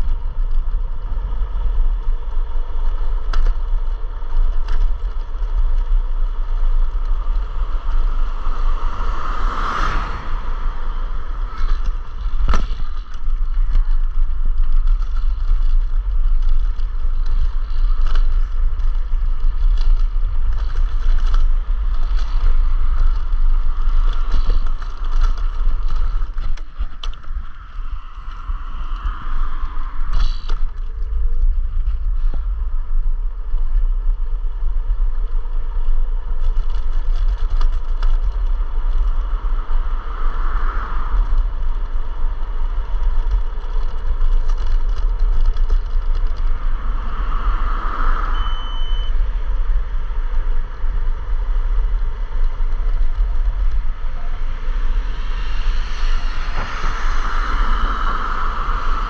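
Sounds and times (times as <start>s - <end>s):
road noise: 0.0s - 59.0s
wind rumbling on microphone: 0.0s - 59.0s
scooter rattling over bumps: 10.4s - 28.4s, 35.7s - 39.8s, 41.1s - 46.6s.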